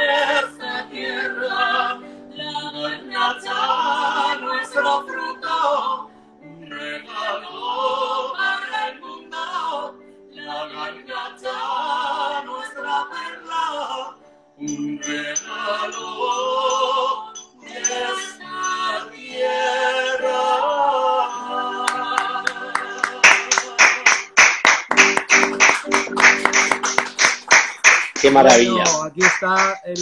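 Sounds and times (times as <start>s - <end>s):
man and woman singing: 0.0s - 24.1s, 28.2s - 30.0s
instrumental chords: 21.4s - 30.0s.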